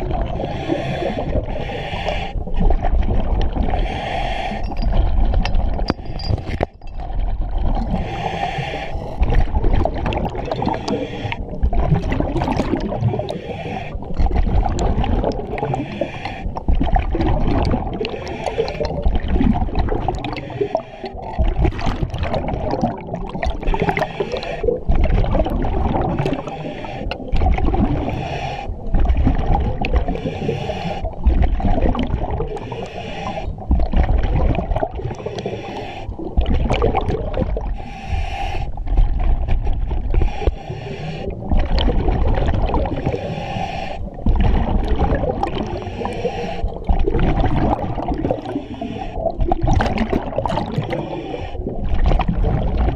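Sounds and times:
gurgling exhaust bubbles: 0.0s - 1.6s, 4.7s - 28.2s, 28.9s - 32.7s, 33.3s - 37.8s, 38.8s - 43.3s, 44.1s - 52.9s.

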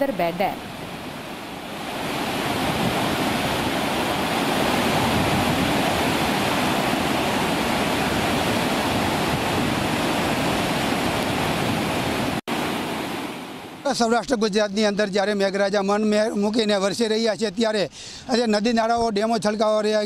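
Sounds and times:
water rushing through spillway: 1.6s - 13.9s.

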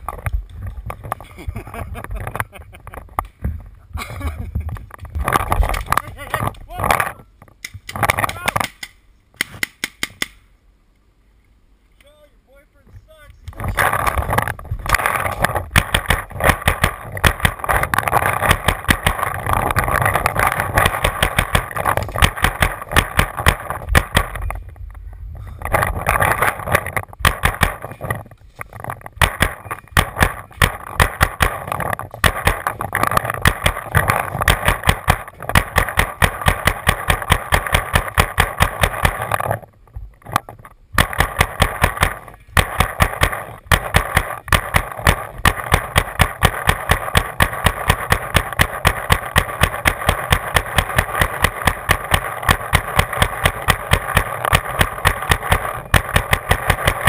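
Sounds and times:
paintball marker rapid firing: 13.8s - 24.5s, 25.7s - 28.2s, 28.8s - 39.6s, 41.0s - 57.0s.

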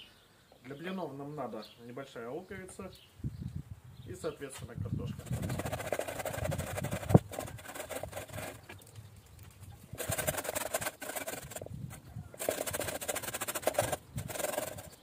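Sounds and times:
potatoes rasping on a metal grater: 5.1s - 8.7s, 9.9s - 11.7s, 12.4s - 15.0s.

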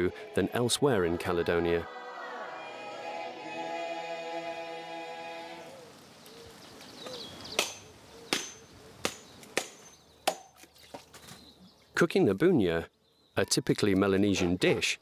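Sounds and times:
background music chord: 0.0s - 5.7s.

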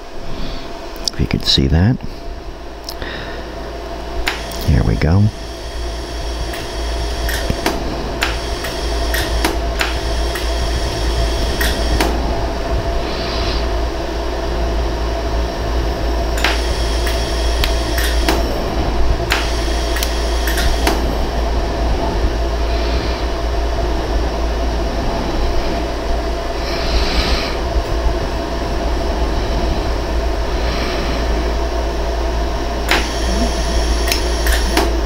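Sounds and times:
steady machine hum: 0.0s - 35.0s
laser welder pulse clicks: 4.2s - 12.2s, 16.4s - 18.6s, 19.2s - 21.2s, 32.9s - 35.0s.

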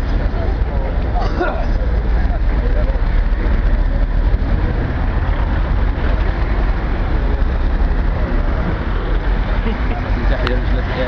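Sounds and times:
low street ambience rumble: 0.0s - 11.0s.

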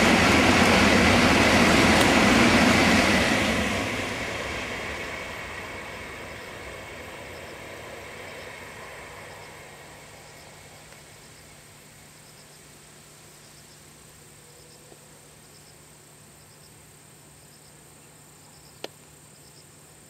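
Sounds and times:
high-speed train rushing: 0.0s - 12.2s
faint insect chirps: 5.2s - 20.0s.

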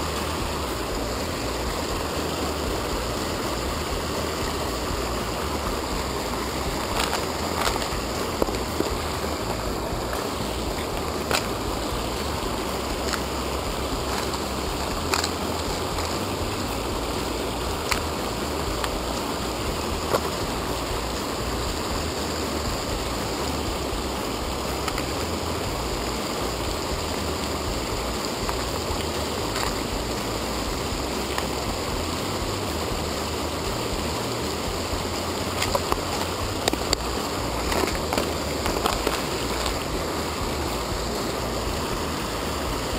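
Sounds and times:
river rushing over rocks: 0.0s - 42.9s.

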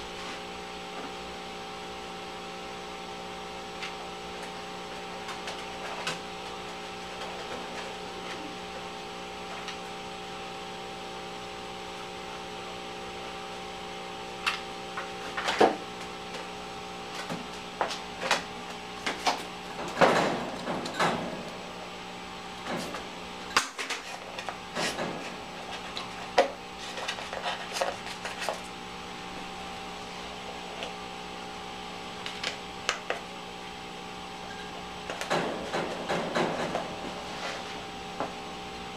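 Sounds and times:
electrical hum: 0.0s - 38.9s.

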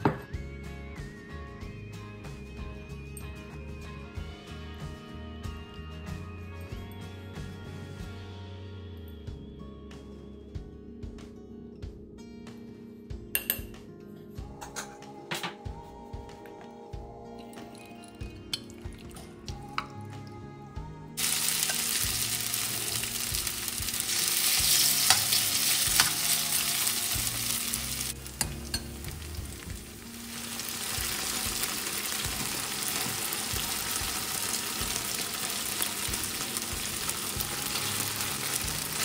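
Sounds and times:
chicken frying in hot oil: 21.2s - 39.0s.

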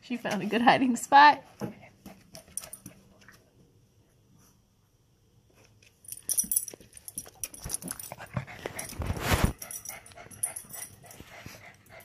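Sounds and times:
rubbing on microphone: 8.5s - 9.6s.

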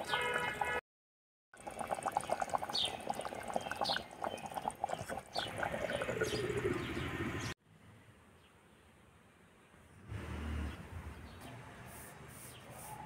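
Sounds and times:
gravy bubbling in a pot: 1.6s - 7.5s.

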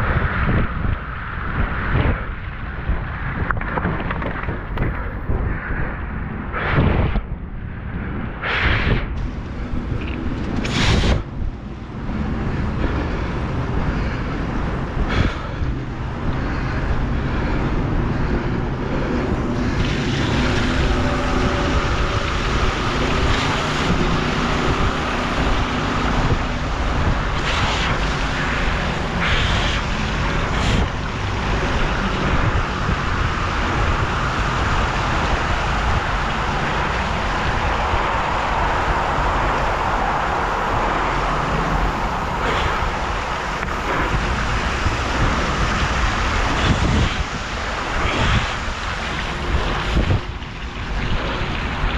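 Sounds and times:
wind rumbling on microphone: 0.0s - 51.9s
wheels spraying through water: 8.5s - 51.9s
sharp water splashes: 14.9s - 51.9s.

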